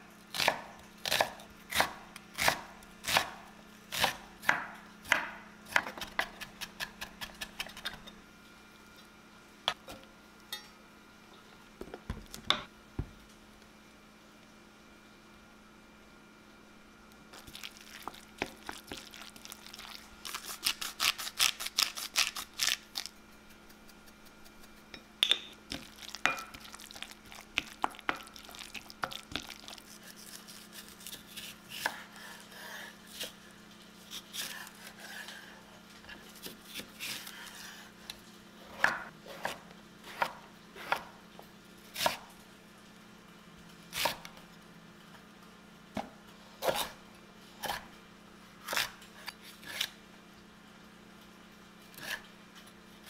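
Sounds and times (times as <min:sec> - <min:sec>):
knife chopping on wooden board: 0:00.4 - 0:08.0.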